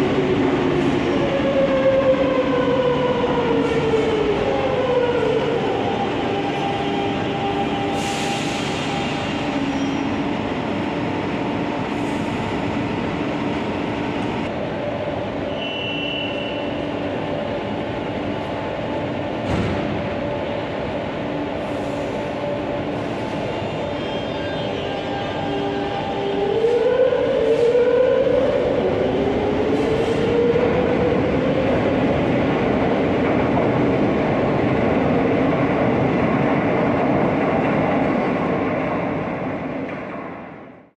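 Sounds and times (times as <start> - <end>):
train doors shutting thud: 19.4 - 20.1.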